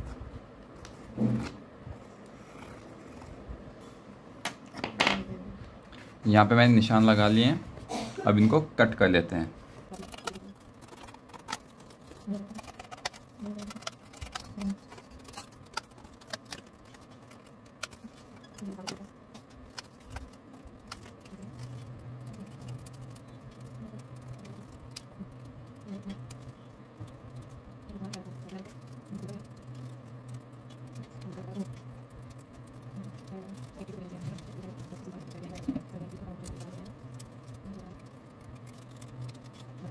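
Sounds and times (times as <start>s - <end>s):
low steady hum: 0.0s - 39.9s
cardboard rustling: 9.9s - 30.0s.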